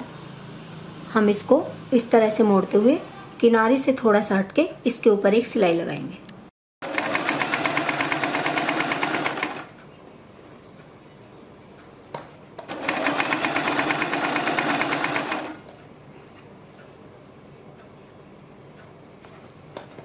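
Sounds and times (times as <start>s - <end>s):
sewing machine stitching: 6.8s - 9.7s, 12.7s - 15.6s
sewing machine click: 12.6s - 15.7s.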